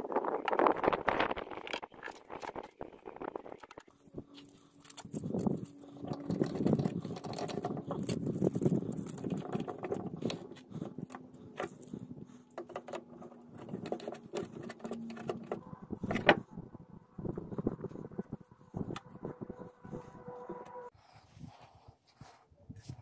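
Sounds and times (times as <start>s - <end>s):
metal and plastic parts clicking: 3.7s - 16.4s.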